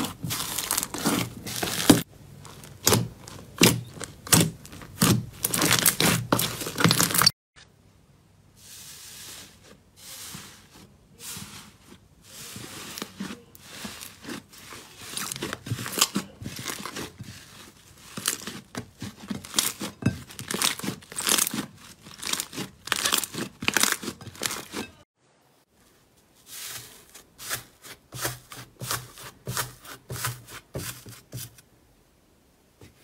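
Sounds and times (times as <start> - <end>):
slime crackling squishes: 0.0 - 7.3, 12.5 - 24.8.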